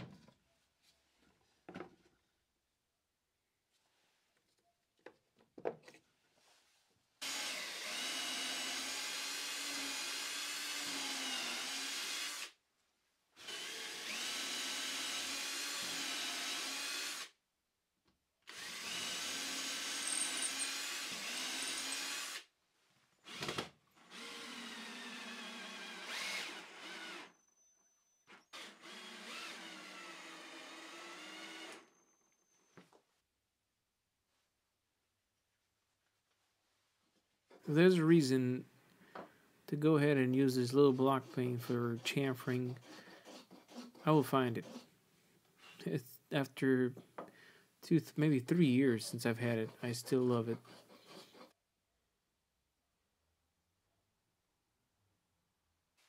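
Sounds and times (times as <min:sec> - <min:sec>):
cordless drill boring into wood: 0:07.2 - 0:12.6, 0:13.4 - 0:17.4, 0:18.5 - 0:22.5, 0:23.2 - 0:27.5, 0:28.3 - 0:32.2, 0:42.2 - 0:44.9.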